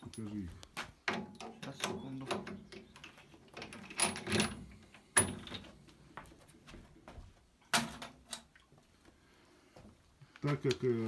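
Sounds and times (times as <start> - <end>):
metal parts knocking and rattling: 1.0 - 5.7.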